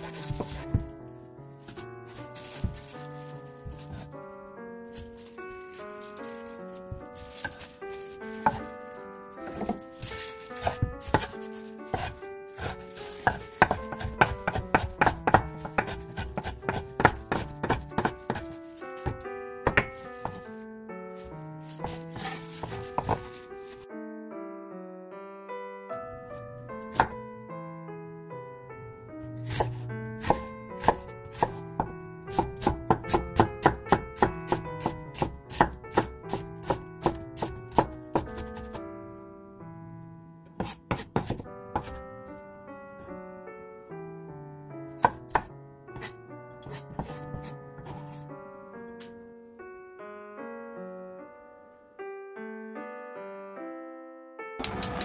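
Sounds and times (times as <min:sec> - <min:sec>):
knife chopping on wooden board: 0:00.0 - 0:00.9, 0:08.3 - 0:08.7, 0:09.4 - 0:20.5, 0:21.8 - 0:23.5, 0:26.9 - 0:27.2, 0:29.4 - 0:38.8, 0:40.6 - 0:42.0, 0:45.0 - 0:48.2
light background music: 0:00.0 - 0:24.3, 0:25.9 - 0:52.0.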